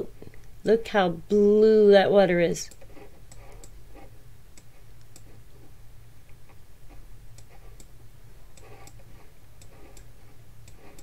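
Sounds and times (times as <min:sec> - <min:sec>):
low electrical hum: 0:00.0 - 0:11.0
computer mouse clicks: 0:02.7 - 0:05.4, 0:06.4 - 0:07.9, 0:08.5 - 0:11.0.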